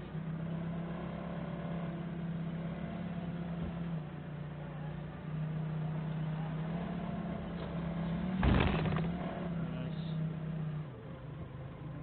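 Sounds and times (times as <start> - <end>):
loud clunk of load jolting: 8.4 - 9.1.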